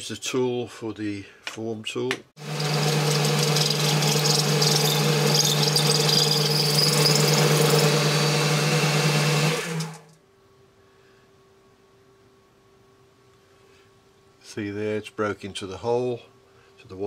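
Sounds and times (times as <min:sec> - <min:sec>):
lathe motor hum: 0:02.4 - 0:10.1
metal cutting scrape: 0:02.4 - 0:10.1.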